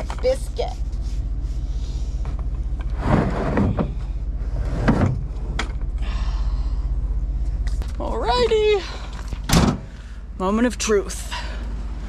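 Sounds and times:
low engine hum: 0.0s - 12.0s
plastic buckets knocking and sliding: 2.8s - 5.3s.

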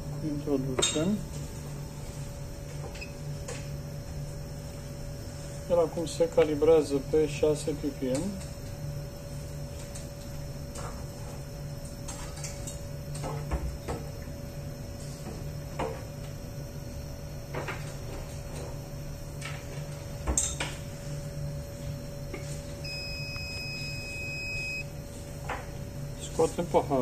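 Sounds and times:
machine low hum: 0.0s - 27.0s
two-tone electronic beep: 22.8s - 24.9s.

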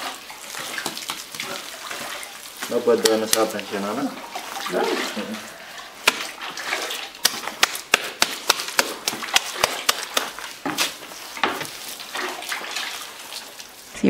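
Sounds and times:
hands slapping wet mud: 0.5s - 3.7s, 6.0s - 13.5s.

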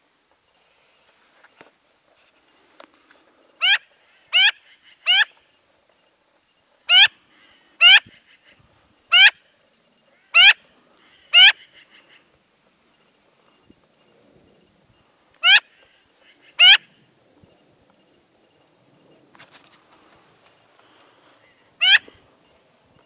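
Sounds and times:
magpie calling: 3.6s - 5.4s, 6.9s - 7.2s, 7.8s - 9.4s, 10.2s - 12.3s, 15.4s - 16.9s, 21.4s - 22.2s.

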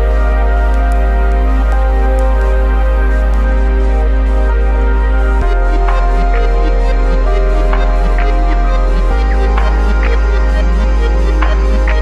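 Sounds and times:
sustained chords over deep bass: 0.0s - 12.0s.

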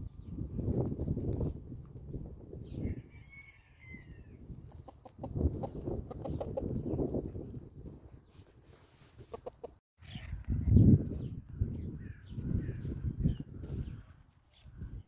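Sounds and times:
chickens clucking: 4.6s - 7.0s, 9.2s - 10.3s.

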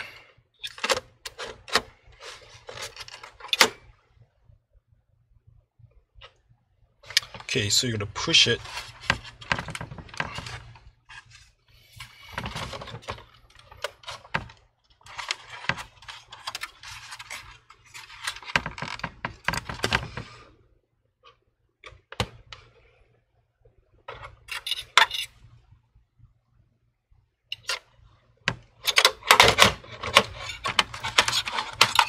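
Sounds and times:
metal scraping and rattling: 28.8s - 32.0s.

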